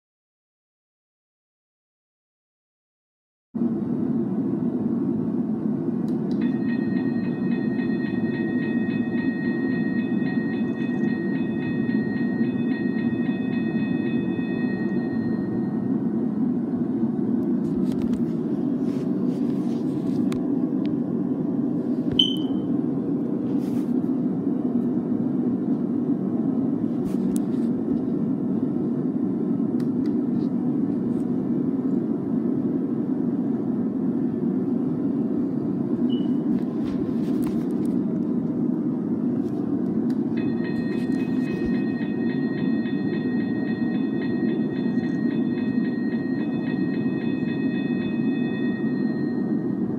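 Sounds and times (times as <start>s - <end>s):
high electronic warning tone: 6.4s - 16.6s, 22.2s - 22.8s, 40.3s - 49.9s.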